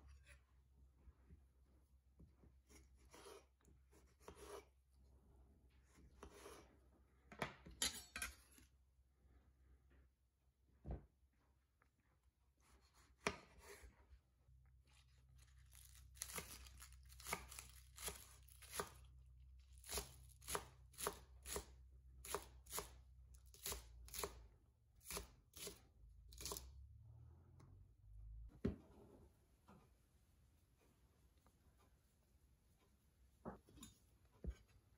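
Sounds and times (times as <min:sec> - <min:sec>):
knife scraping board: 0:02.7 - 0:04.7, 0:06.2 - 0:06.7
knife chopping on wooden board: 0:12.9 - 0:13.8, 0:19.8 - 0:22.9.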